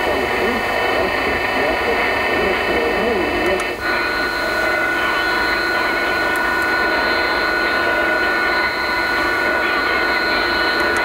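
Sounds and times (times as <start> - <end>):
radio static and hiss: 0.0 - 11.0
high steady whistle: 3.8 - 11.0.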